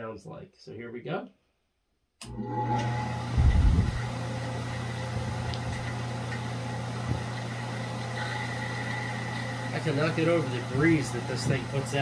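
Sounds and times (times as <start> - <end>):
fan running: 2.2 - 12.0.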